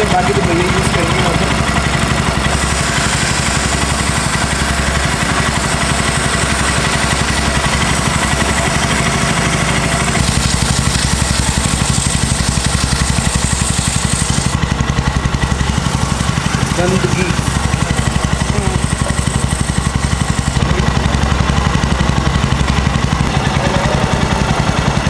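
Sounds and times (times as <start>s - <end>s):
motorcycle engine idling: 0.0s - 25.0s
aerosol spray hissing: 2.5s - 14.6s, 15.9s - 20.6s.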